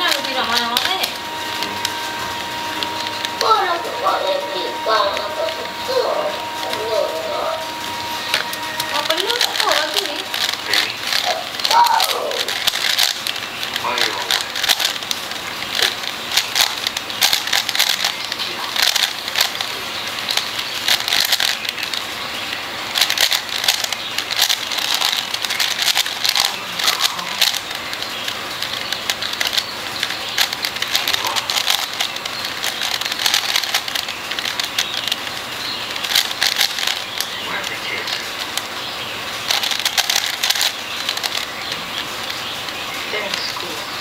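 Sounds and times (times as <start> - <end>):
speed cube clicking: 0.0 - 44.0.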